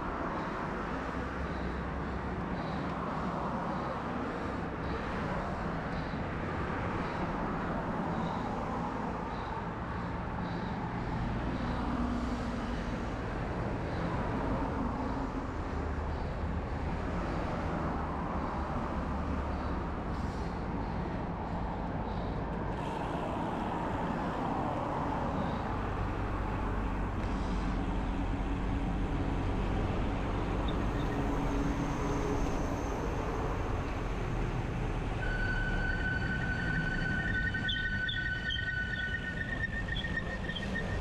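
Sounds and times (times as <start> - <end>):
bike rolling road noise: 0.0 - 41.0
thin high tones: 35.2 - 41.0.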